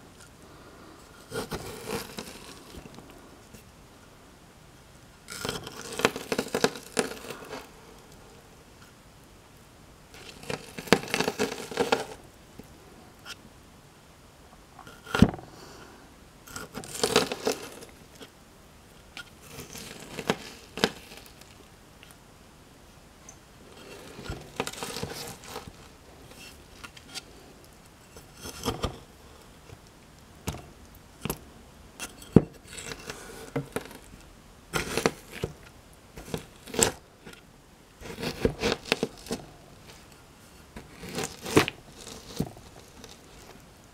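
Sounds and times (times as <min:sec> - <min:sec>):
rock crushing pomegranate: 0:01.2 - 0:03.6, 0:05.2 - 0:08.2, 0:10.2 - 0:12.2, 0:16.5 - 0:18.4, 0:19.0 - 0:22.2, 0:23.3 - 0:43.9.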